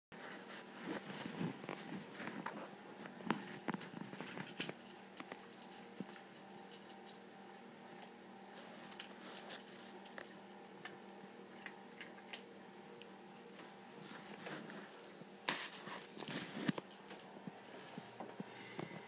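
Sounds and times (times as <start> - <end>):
faint steady hum: 0.2 - 19.0
cat crunching dry kibble: 8.0 - 13.1.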